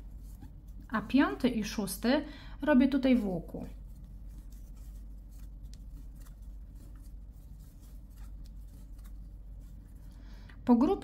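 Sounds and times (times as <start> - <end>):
steady low hum: 0.0 - 11.0
cord rubbing on crochet hook: 3.8 - 10.1.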